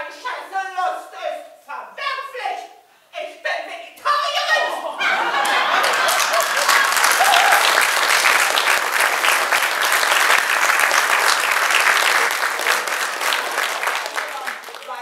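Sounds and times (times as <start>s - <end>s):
audience applauding: 5.1s - 15.0s.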